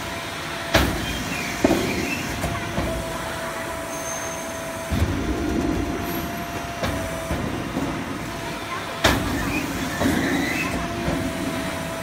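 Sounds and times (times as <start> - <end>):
machine rumble: 0.0 - 12.0
steady machine whine: 0.0 - 12.0
machine clunks: 4.9 - 8.2.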